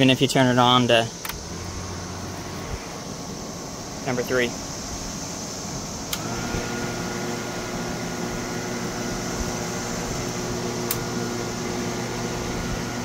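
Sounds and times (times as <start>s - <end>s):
fan motor whirring hum: 0.0s - 13.0s
fan dial click: 1.2s - 1.4s, 6.1s - 6.5s, 10.8s - 11.2s
sharp click: 1.2s - 1.4s, 6.1s - 6.3s.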